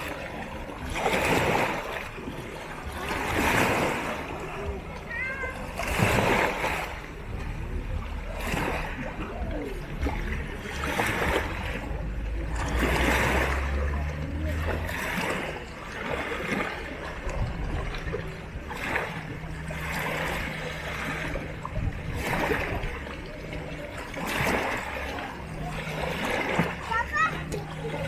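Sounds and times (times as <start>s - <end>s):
low steady rumble: 0.0s - 28.0s
waves splashing against rocks: 0.0s - 28.0s.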